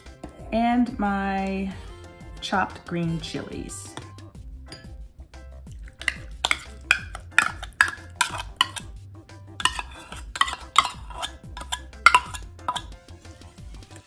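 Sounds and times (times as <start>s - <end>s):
metal spoon scraping tin can: 5.9s - 8.9s, 9.6s - 12.9s.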